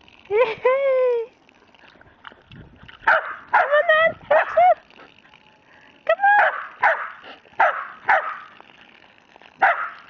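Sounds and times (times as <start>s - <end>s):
dog barking: 3.1s - 4.6s, 6.4s - 8.5s, 9.6s - 10.0s.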